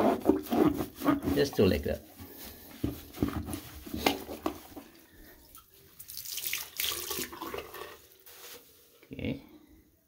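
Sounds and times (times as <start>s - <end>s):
wet sponge squelching and splashing: 0.0s - 8.9s
water running into a sink: 6.1s - 8.0s.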